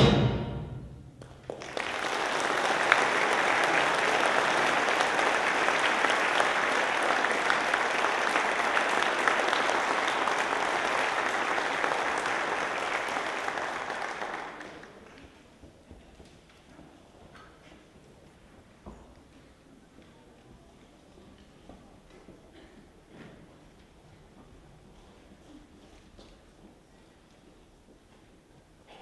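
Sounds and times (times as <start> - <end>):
concert band final chord: 0.0 - 1.2
audience applause: 1.2 - 15.2.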